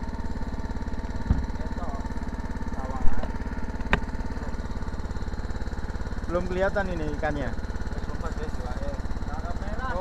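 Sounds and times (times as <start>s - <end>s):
small engine chugging: 0.0s - 10.0s
sharp knocks: 1.2s - 1.6s.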